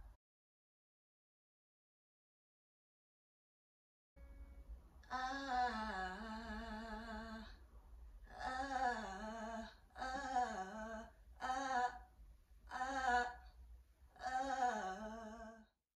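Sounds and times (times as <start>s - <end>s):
woman singing vocal runs: 5.0s - 7.6s, 8.3s - 15.8s.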